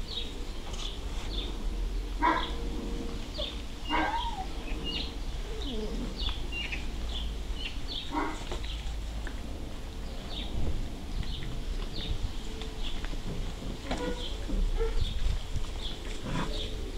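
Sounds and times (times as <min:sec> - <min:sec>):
puppies barking: 0:02.2 - 0:02.6, 0:03.3 - 0:06.8, 0:07.6 - 0:09.0, 0:13.8 - 0:15.2.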